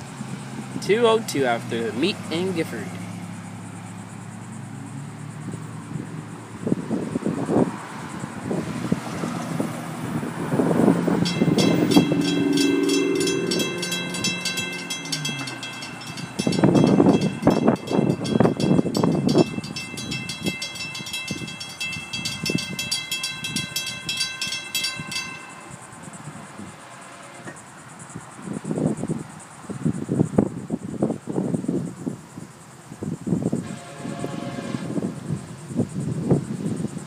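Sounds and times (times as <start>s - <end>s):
crossing warning bells ringing: 0.8s - 3.2s, 10.0s - 27.6s
train horn: 11.2s - 19.5s, 26.6s - 27.6s, 33.6s - 35.2s.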